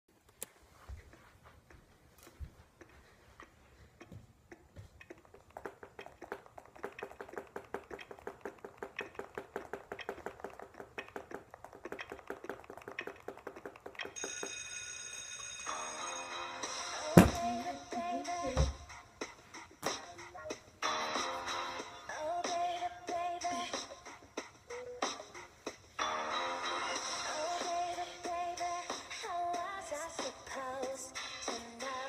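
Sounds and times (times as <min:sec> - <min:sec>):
music playing: 0:15.6 - 0:32.0.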